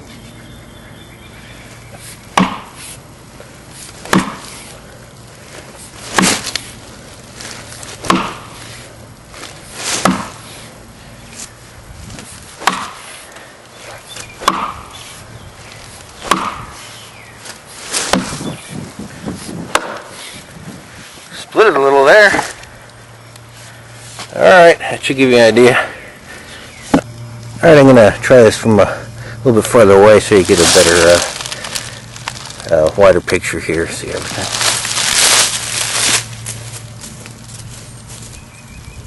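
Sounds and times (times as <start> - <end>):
axe chopping log: 2.3 - 2.8, 4.0 - 4.7, 6.1 - 6.6, 8.0 - 8.6, 9.9 - 10.5, 12.6 - 13.3, 14.2 - 14.9, 16.2 - 16.7, 17.9 - 18.5, 19.7 - 20.2.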